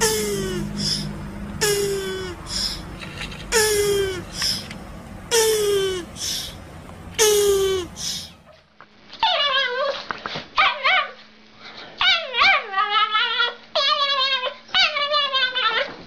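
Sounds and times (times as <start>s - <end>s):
faint steady hum: 0.0s - 9.2s
dog whining and yowling: 9.2s - 10.0s, 12.0s - 16.0s.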